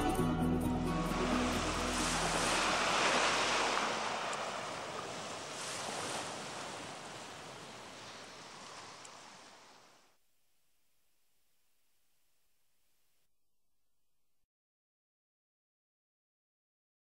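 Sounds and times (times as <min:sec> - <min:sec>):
background music: 0:00.0 - 0:03.8
sea wash: 0:00.0 - 0:10.1
wind: 0:00.0 - 0:10.2.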